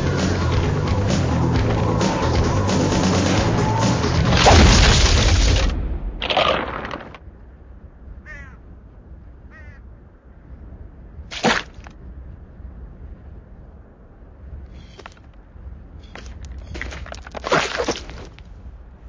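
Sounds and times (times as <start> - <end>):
loud film music: 0.0 - 5.0
chirping animal calls: 8.2 - 8.6, 9.5 - 9.9.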